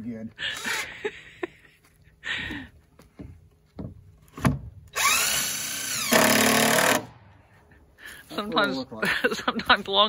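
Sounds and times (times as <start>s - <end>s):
power drill driving screw: 4.9s - 7.1s.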